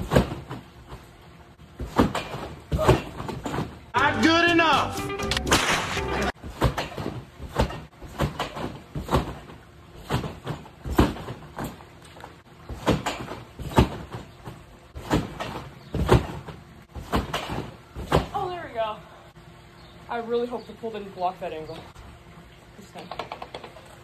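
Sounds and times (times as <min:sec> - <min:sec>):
trampoline thumps: 0:00.0 - 0:04.0, 0:05.5 - 0:18.9.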